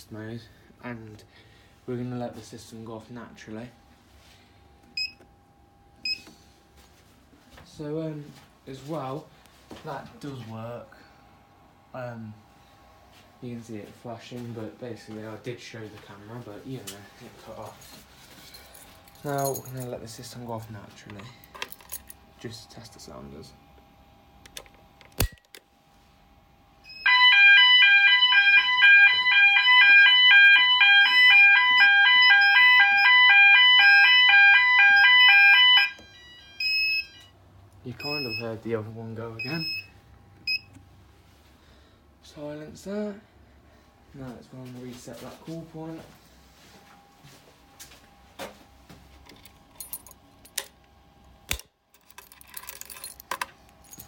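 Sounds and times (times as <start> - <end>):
keys jangling: 17.8 - 19.9, 21.4 - 22.2, 49.3 - 50.7, 51.5 - 54.0
two-tone fire alarm sounders: 26.8 - 37.3, 38.0 - 38.5, 39.4 - 40.7.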